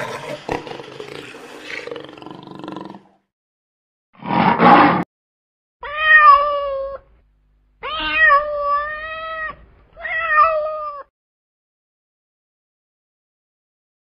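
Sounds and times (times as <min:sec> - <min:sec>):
kitten meowing: 0:07.8 - 0:11.0.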